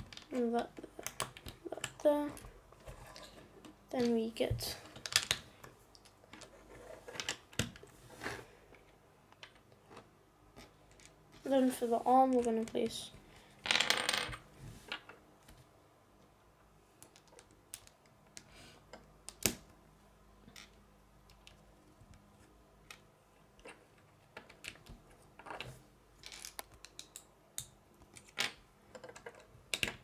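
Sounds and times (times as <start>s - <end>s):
plastic bricks clicking: 24.4s - 30.0s.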